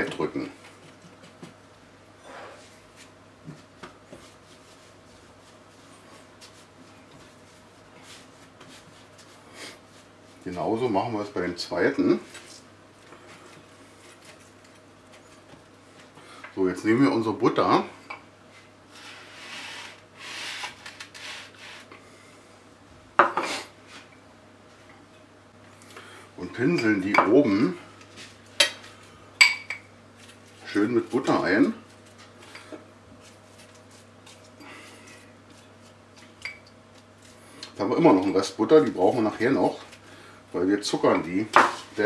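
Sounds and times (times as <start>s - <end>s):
low steady hum: 0.0s - 42.0s
hands rolling sticky dough: 2.9s - 10.7s.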